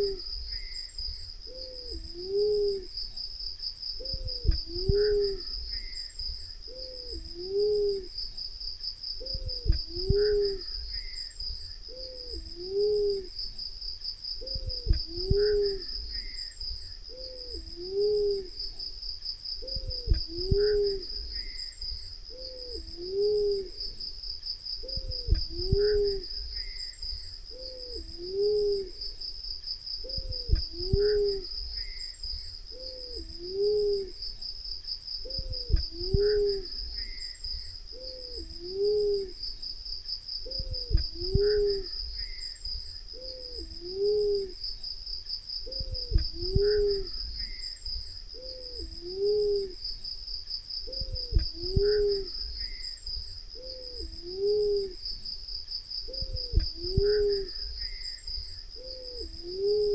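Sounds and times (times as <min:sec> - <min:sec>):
dove two-note hoot: 0:00.0 - 0:00.8, 0:01.5 - 0:03.0, 0:04.0 - 0:06.0, 0:06.7 - 0:08.2, 0:09.2 - 0:11.2, 0:11.9 - 0:13.4, 0:14.4 - 0:16.4, 0:17.1 - 0:18.6, 0:19.6 - 0:21.6, 0:22.3 - 0:24.0, 0:24.8 - 0:26.8, 0:27.5 - 0:29.2, 0:30.0 - 0:31.6, 0:32.7 - 0:34.2, 0:35.2 - 0:37.2, 0:37.9 - 0:39.4, 0:40.4 - 0:42.3, 0:43.1 - 0:44.6, 0:45.7 - 0:47.2, 0:48.4 - 0:49.8, 0:50.8 - 0:52.4, 0:53.6 - 0:55.0, 0:56.1 - 0:57.6, 0:58.8 - 0:59.9
high insect buzz: 0:00.0 - 0:59.9.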